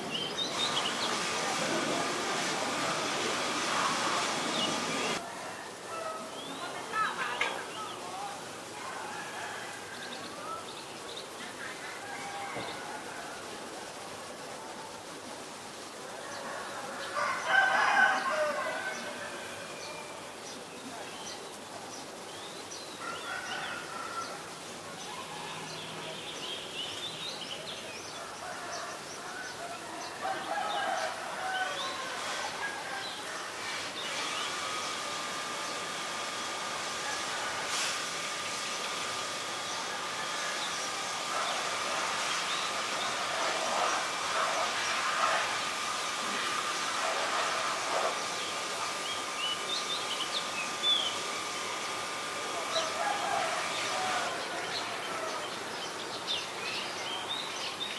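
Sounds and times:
small birds chirping: 0.0s - 1.8s, 19.8s - 35.9s
steady hiss: 0.0s - 57.9s.

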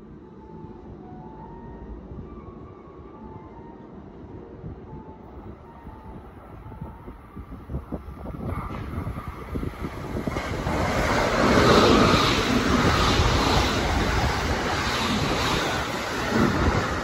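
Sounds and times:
train passing at speed: 0.0s - 17.0s.

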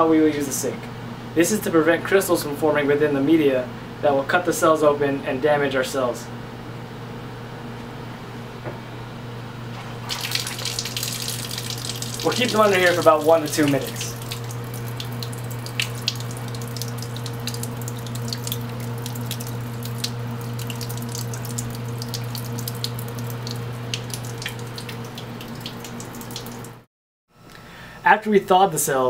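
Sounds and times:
tap water running into sink: 9.8s - 26.8s.

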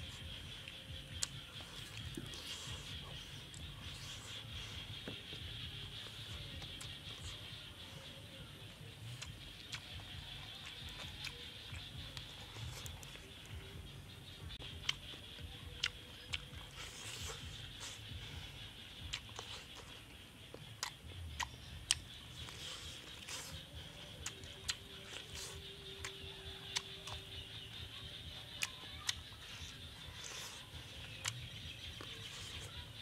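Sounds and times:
man chewing food: 0.0s - 33.0s.

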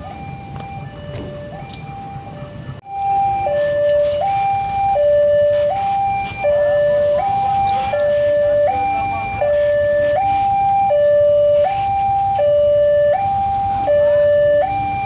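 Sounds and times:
two-tone crossing alarm: 0.0s - 15.0s.

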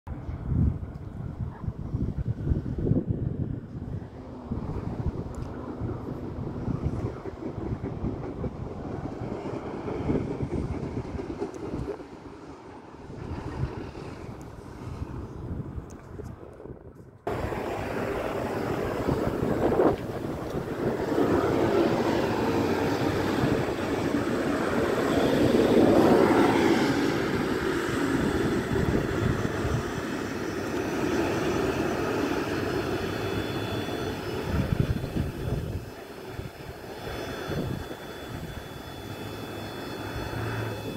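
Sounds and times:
diesel railcar rumbling past: 3.3s - 15.6s, 17.3s - 40.9s.

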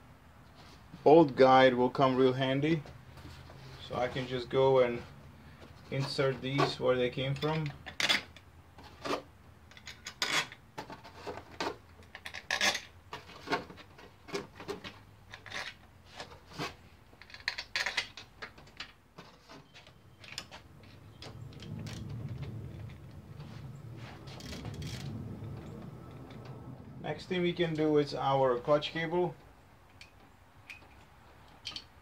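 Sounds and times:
low steady rumble: 20.6s - 30.1s
metal bolts clinking: 29.8s - 32.0s.

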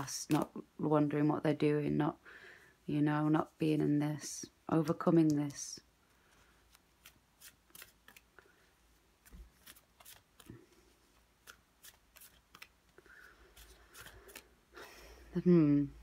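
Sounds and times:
cards shuffling and flicking: 0.2s - 0.6s, 6.6s - 8.4s, 9.2s - 14.5s.

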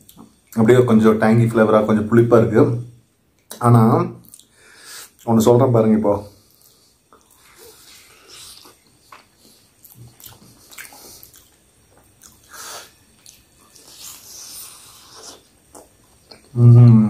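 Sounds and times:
wet mouth clicks and smacks: 4.2s - 4.5s
person chewing: 6.5s - 16.6s.

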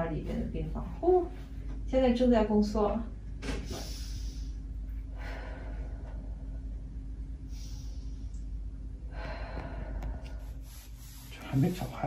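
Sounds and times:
low hum: 0.0s - 12.0s
woman breathing out: 7.5s - 8.3s, 9.1s - 10.8s.

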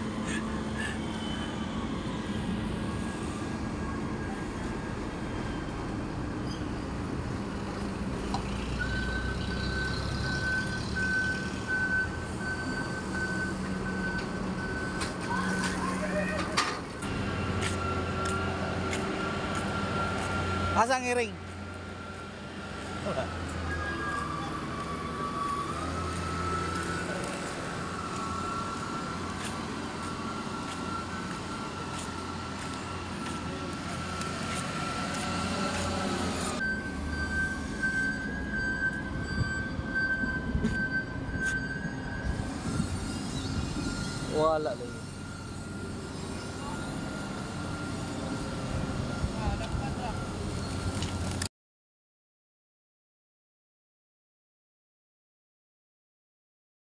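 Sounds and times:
vehicle engine rumbling: 0.0s - 51.5s
reversing alarm beeping: 8.6s - 16.4s, 17.0s - 51.2s
thin whine: 40.5s - 51.4s.

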